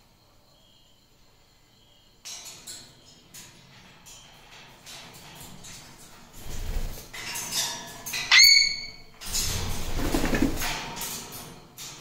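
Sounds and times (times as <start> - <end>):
birds rustling and fluttering: 2.2 - 12.0
parrot whistled call: 8.3 - 9.0.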